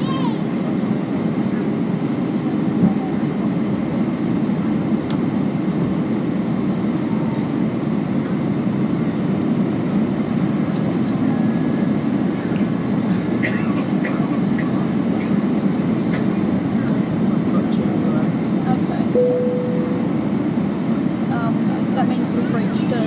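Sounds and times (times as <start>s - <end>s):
jet engine and airflow roar: 0.0s - 23.0s.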